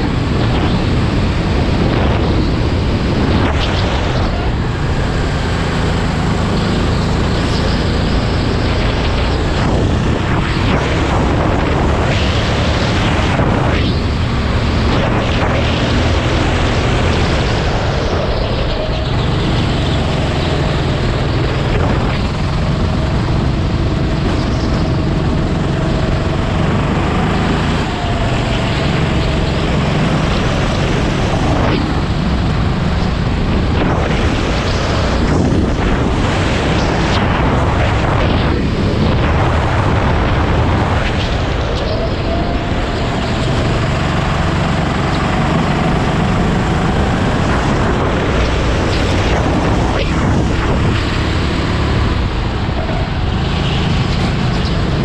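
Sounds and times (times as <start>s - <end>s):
wind on microphone: 0.0s - 55.0s
kart engine revving: 4.0s - 10.2s, 22.3s - 38.0s, 42.6s - 55.0s.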